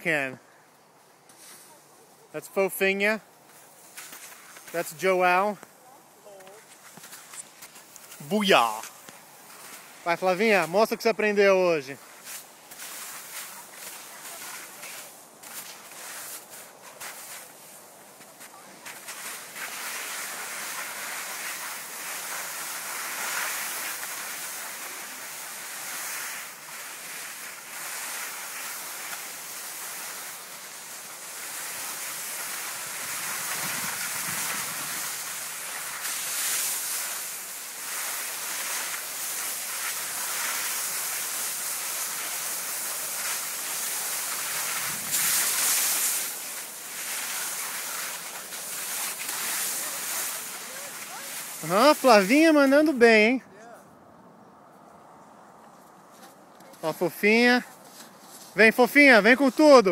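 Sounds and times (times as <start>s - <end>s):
skis scraping over snow: 1.3s - 53.3s, 56.1s - 59.9s
wind rushing over microphone: 32.8s - 35.4s, 44.6s - 45.6s.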